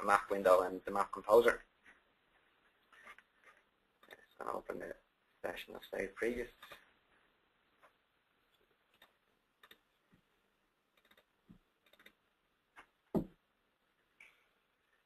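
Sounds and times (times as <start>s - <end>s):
computer mouse clicks: 8.9s - 9.9s, 10.9s - 12.2s.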